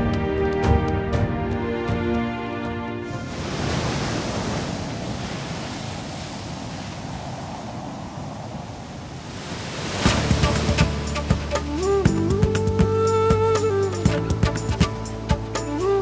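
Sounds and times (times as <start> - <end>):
background music: 0.0 - 3.5, 10.1 - 16.0
sea surf on a sandy beach: 0.0 - 16.0.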